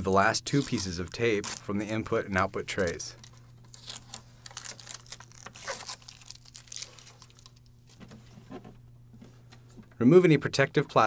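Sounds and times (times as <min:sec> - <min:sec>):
tape peeling and crumpling: 0:00.1 - 0:08.1.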